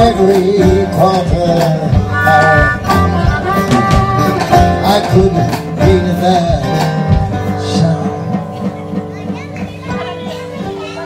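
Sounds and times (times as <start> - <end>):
blues band playing: 0.0 - 11.0
harmonica long notes: 2.0 - 4.8.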